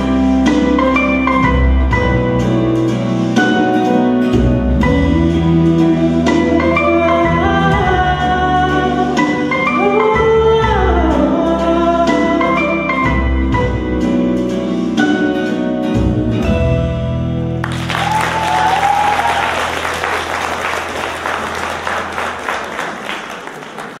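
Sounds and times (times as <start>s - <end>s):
audience applause: 17.6s - 24.0s.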